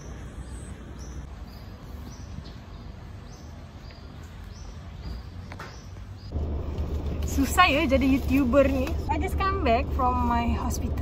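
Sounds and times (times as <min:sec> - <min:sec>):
low outdoor rumble: 0:06.1 - 0:11.0.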